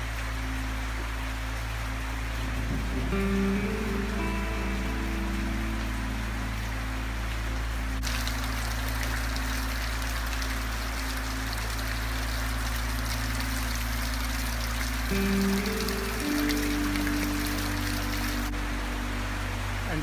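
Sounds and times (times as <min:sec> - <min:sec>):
steady rain falling: 0:00.0 - 0:20.0
water splashing into a tank: 0:08.0 - 0:15.9.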